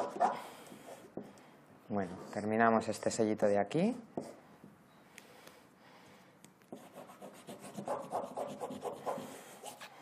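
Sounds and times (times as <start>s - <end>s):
fingertips rubbing paper on canvas: 6.8s - 9.9s.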